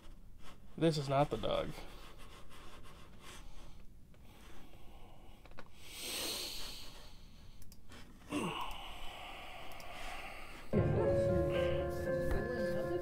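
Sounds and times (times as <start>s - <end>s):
background hiss: 0.0s - 13.0s
person breathing: 3.2s - 12.1s.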